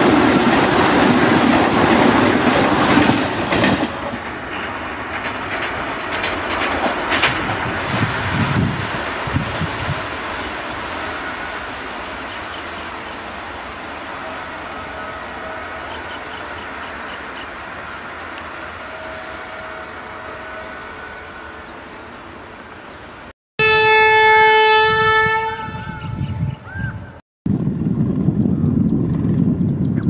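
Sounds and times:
train rumbling: 0.0s - 30.0s
locomotive horn blast: 14.0s - 16.4s, 18.4s - 21.8s, 23.6s - 26.7s.

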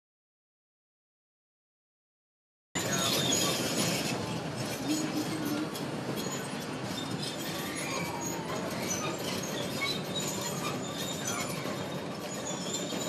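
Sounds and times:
bulldozer running: 2.8s - 13.0s
short high squeals: 4.7s - 13.0s.

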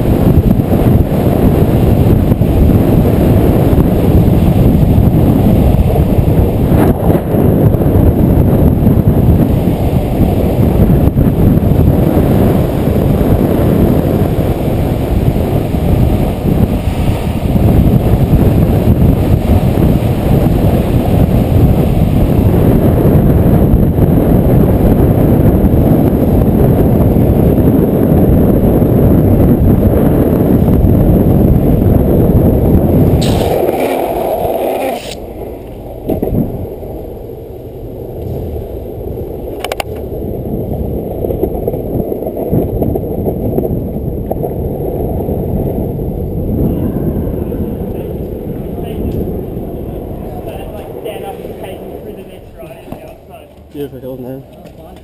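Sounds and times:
skateboard wheels rumbling on asphalt: 0.0s - 55.0s
wind rushing over microphone: 0.0s - 55.0s.

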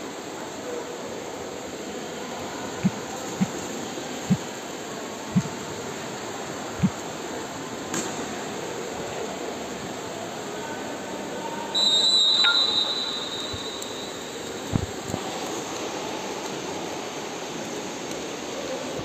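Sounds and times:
high-pitched whistle blast: 11.8s - 14.2s.

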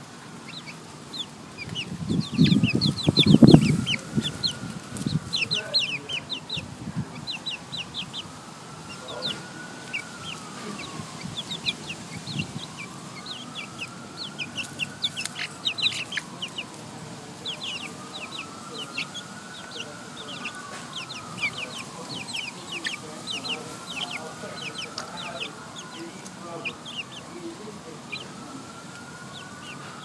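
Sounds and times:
chicks peeping: 0.0s - 30.0s.

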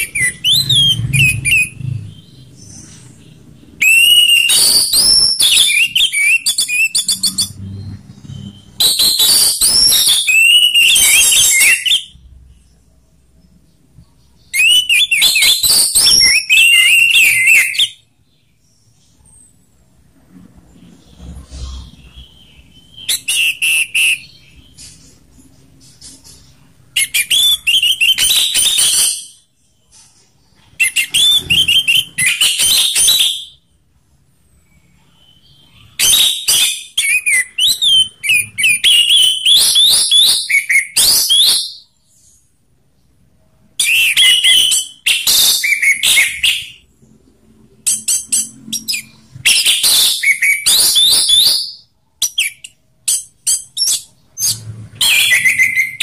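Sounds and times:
thrush singing whistled phrases: 0.0s - 3.0s, 3.8s - 12.3s, 14.5s - 18.1s, 22.0s - 24.8s, 27.0s - 29.4s, 30.8s - 33.6s, 34.6s - 41.9s, 43.8s - 46.8s, 47.9s - 56.0s.

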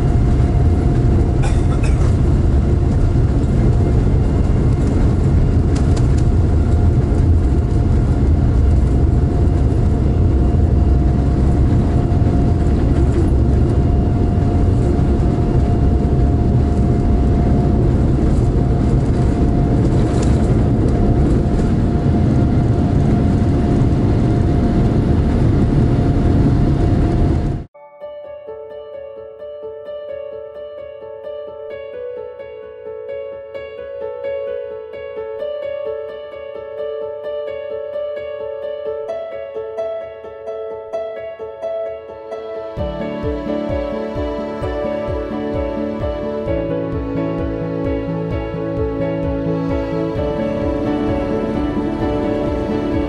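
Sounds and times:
jet engines at takeoff thrust: 0.0s - 27.7s, 42.8s - 53.0s
wheels rumbling on runway: 0.0s - 27.7s
steady tone: 0.0s - 29.0s, 42.1s - 53.0s.

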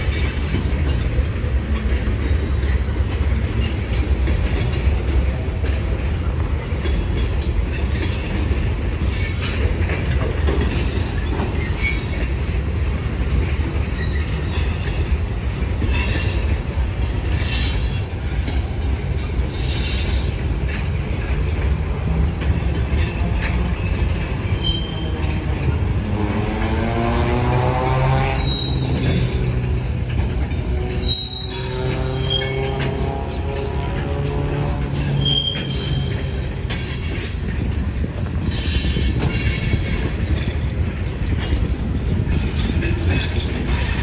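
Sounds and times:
train wheels rumbling on track: 0.0s - 44.0s
high-pitched wheel squeals: 10.9s - 12.5s, 19.6s - 20.8s, 23.0s - 25.2s, 28.2s - 29.7s, 30.7s - 37.4s.

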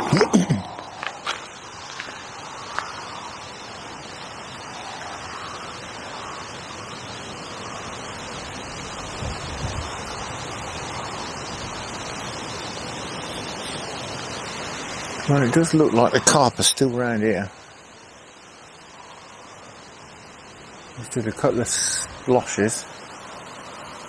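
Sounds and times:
wind rushing through trees: 0.0s - 24.0s
wind buffeting microphone: 7.3s - 16.2s.

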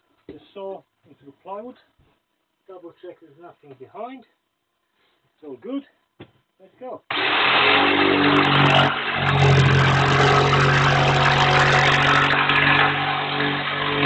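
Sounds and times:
electric jigsaw cutting plywood: 7.1s - 14.0s.

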